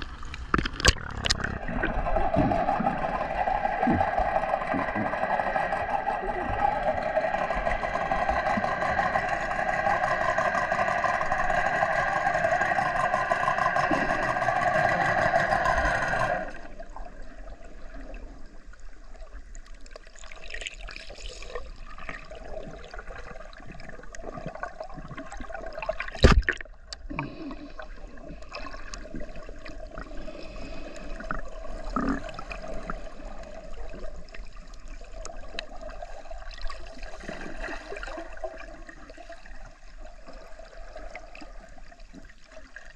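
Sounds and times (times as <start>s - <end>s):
boat motor droning underwater: 0.0s - 19.6s
underwater wash with crackles: 0.0s - 42.9s.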